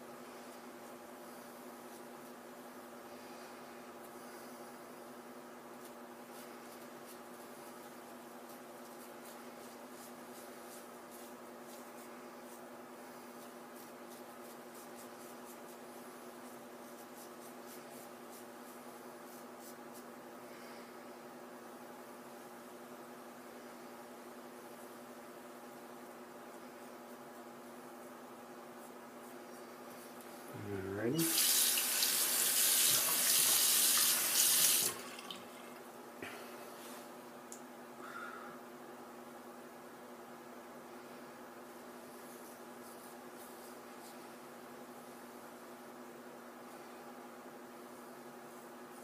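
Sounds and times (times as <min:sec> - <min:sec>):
steady low hum: 0:00.0 - 0:31.4.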